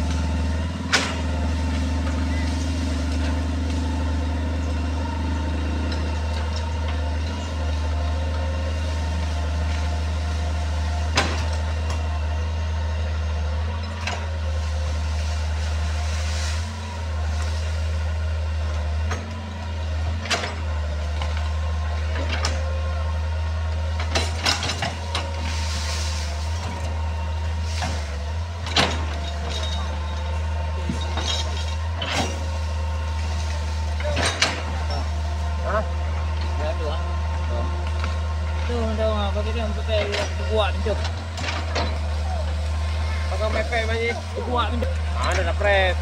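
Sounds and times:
excavator diesel engine running: 0.0 - 46.0
sharp knocks and cracks: 0.9 - 1.4.

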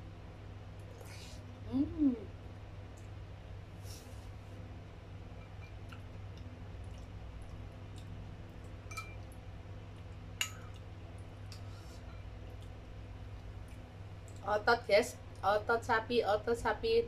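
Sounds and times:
steady low hum: 0.0 - 17.0
soft eating sounds: 0.5 - 15.5
metal spoon clinking on bowl: 8.9 - 9.2.

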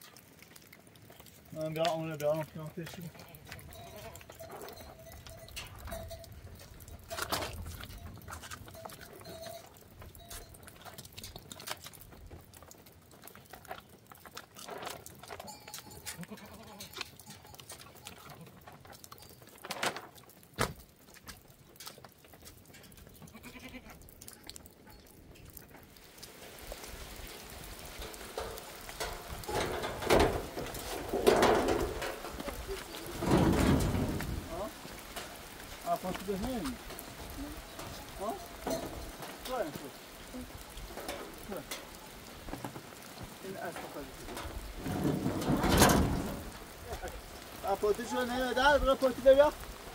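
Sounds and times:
footsteps: 0.0 - 23.3, 23.9 - 49.9
rain: 0.0 - 49.9
goat bleating: 3.2 - 4.8, 15.9 - 17.2, 23.1 - 24.0.

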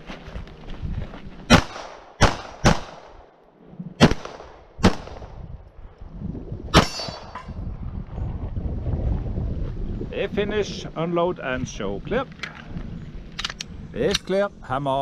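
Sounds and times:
pistol shots: 1.5 - 3.2, 4.0 - 5.3.

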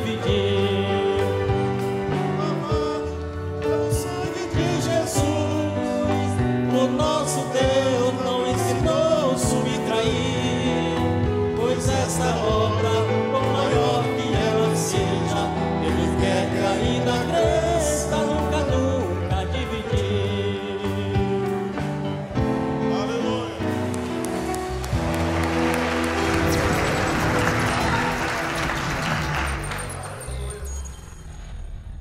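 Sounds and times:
person singing: 0.0 - 21.9.

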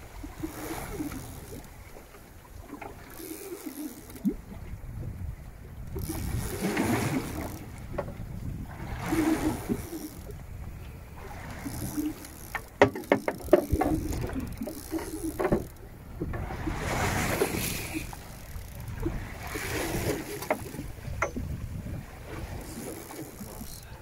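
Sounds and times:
sea splashing against boat hull: 5.9 - 10.5, 11.1 - 24.0
sharp knocks and clicks: 11.8 - 16.4, 20.4 - 21.5.

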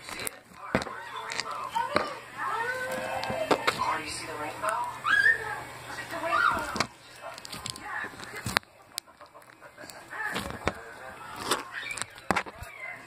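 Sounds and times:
slime squelching: 0.0 - 13.0.

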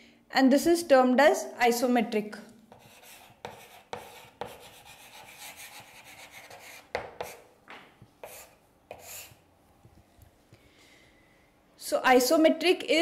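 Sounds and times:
chalk writing on a chalkboard: 2.7 - 7.5, 8.2 - 9.4.

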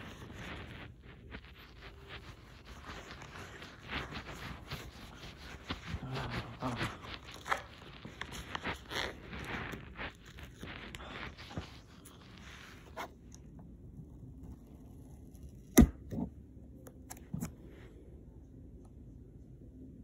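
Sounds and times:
rustling handling noise: 0.0 - 15.4.

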